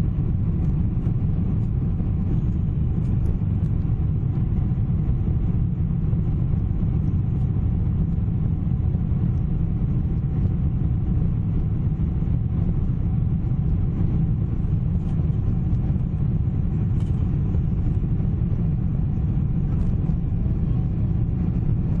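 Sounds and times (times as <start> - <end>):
airplane cabin engine rumble: 0.0 - 22.0.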